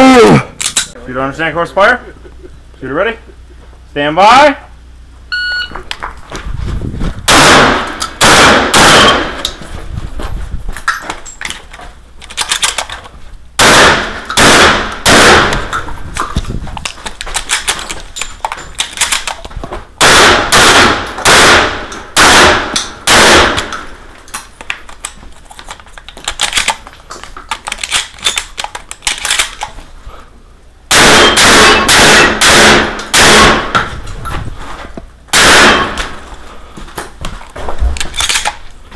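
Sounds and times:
shot timer beep: 0:05.3 - 0:05.8
shotgun fire: 0:07.3 - 0:09.4, 0:13.6 - 0:15.8, 0:20.0 - 0:23.9, 0:30.9 - 0:33.8, 0:35.3 - 0:36.2.

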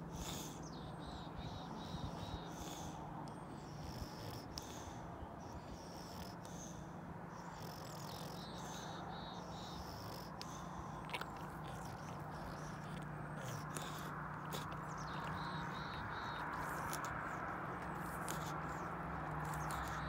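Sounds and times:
faint low hum: 0:00.0 - 0:20.0
small bird chirping: 0:07.4 - 0:20.0.

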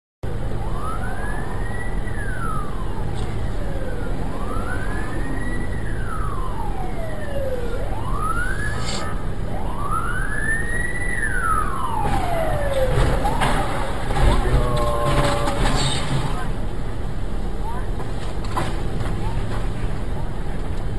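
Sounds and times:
idling traffic hum: 0:00.2 - 0:20.9
ambulance siren wailing: 0:00.3 - 0:16.6
vehicle crash bangs: 0:11.9 - 0:16.8, 0:18.0 - 0:19.8.

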